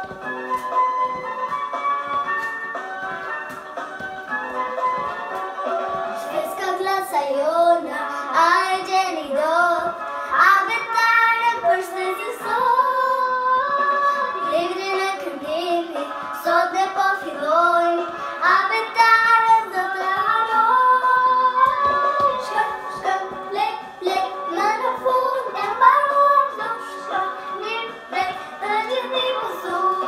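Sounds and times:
instrumental backing track: 0:00.0 - 0:30.0
girl singing: 0:06.0 - 0:30.0.

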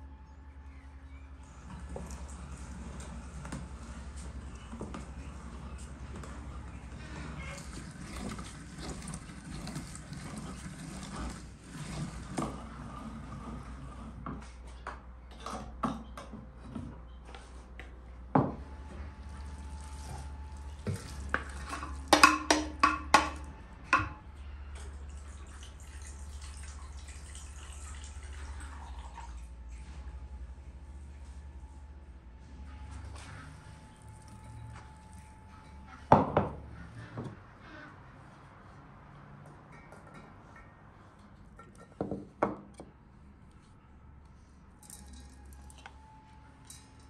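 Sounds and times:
liquid trickling into a bowl: 0:24.8 - 0:29.9.

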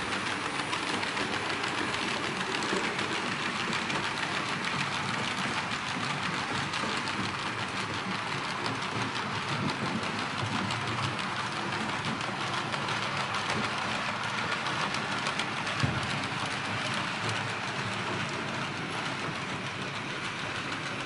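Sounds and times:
model train wheels rumbling: 0:00.0 - 0:21.0.

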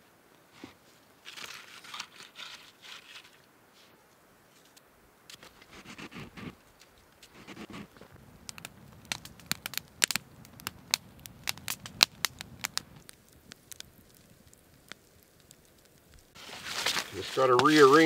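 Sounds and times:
wood fire crackling and popping: 0:05.2 - 0:18.0.

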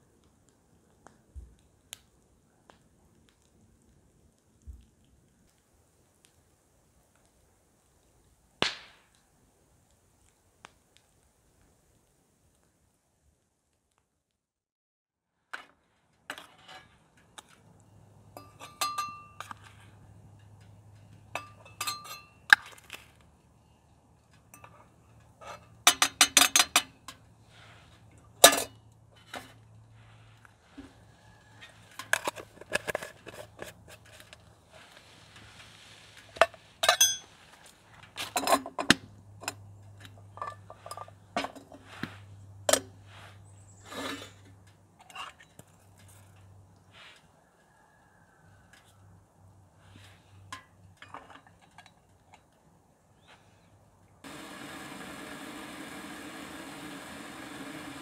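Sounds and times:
dishes and utensils clinking: 0:18.3 - 0:19.8, 0:21.3 - 0:22.5, 0:36.8 - 0:37.3.

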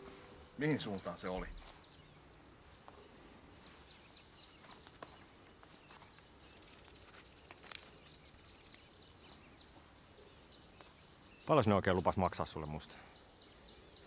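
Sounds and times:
rustle: 0:00.0 - 0:14.0
small birds chirping: 0:00.0 - 0:14.0
footsteps on dry ground: 0:02.6 - 0:10.0.

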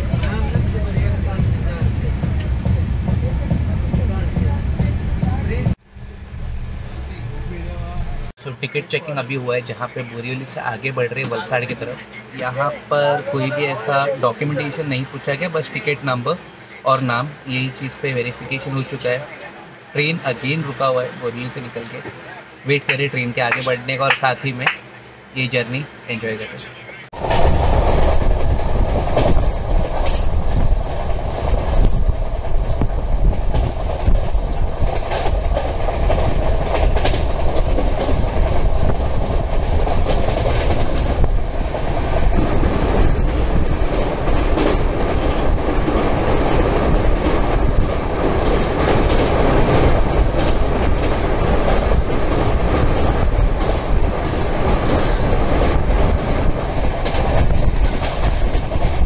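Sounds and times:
train wheel and track rush: 0:00.0 - 0:59.0
wheels clattering over rail joints: 0:27.2 - 0:59.0.

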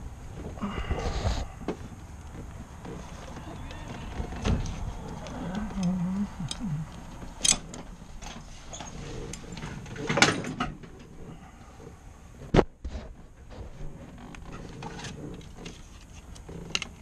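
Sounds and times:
faint rustling: 0:00.3 - 0:10.2.

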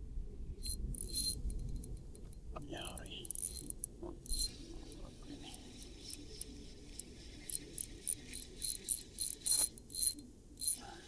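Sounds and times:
fishing reel ticking: 0:00.6 - 0:01.4, 0:03.2 - 0:04.6, 0:05.7 - 0:10.8.

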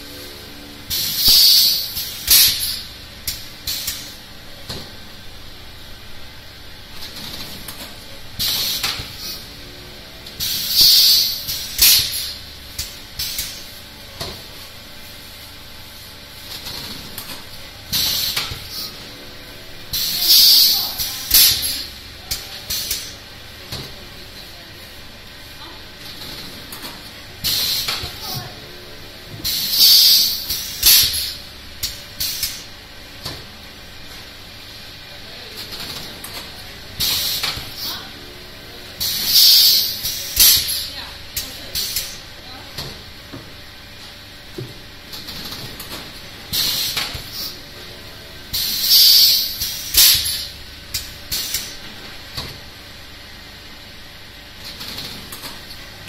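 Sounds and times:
low machine hum: 0:00.0 - 0:56.0
hissing bursts of air: 0:00.9 - 0:04.1, 0:10.4 - 0:12.4, 0:29.4 - 0:31.4, 0:39.0 - 0:40.9, 0:46.5 - 0:47.6, 0:48.5 - 0:51.8
filling machine hissing bursts: 0:19.9 - 0:21.9, 0:48.5 - 0:50.6.

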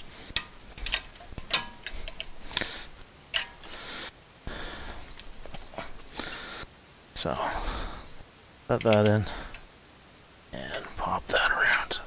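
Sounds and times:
screwdriver scraping metal: 0:00.0 - 0:02.4
metallic spring clicks: 0:00.4 - 0:02.3, 0:03.3 - 0:03.8.

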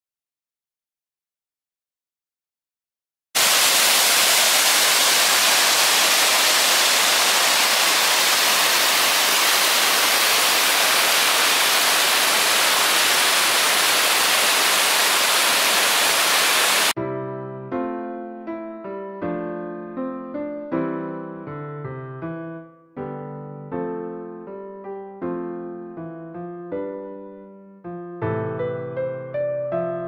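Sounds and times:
waterfall rushing: 0:03.4 - 0:17.0
soft piano music: 0:17.0 - 0:30.0.

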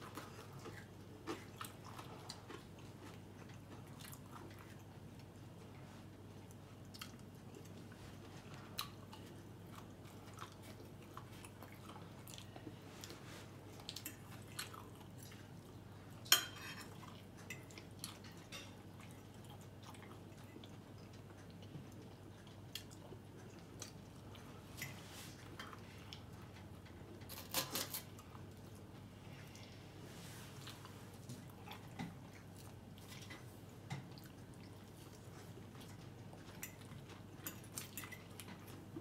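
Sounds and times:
quiet chewing: 0:00.0 - 0:39.0
fork clinking on a plate: 0:16.3 - 0:16.9.

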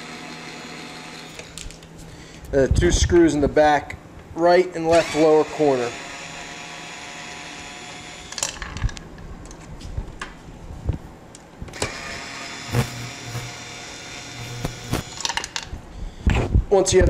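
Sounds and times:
cordless screwdriver whirring: 0:11.8 - 0:15.5.

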